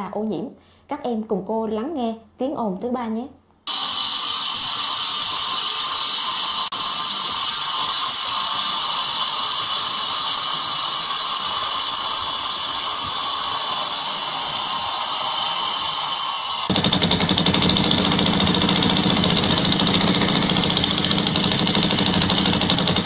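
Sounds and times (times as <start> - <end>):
angle grinder cutting concrete: 3.7 - 23.0.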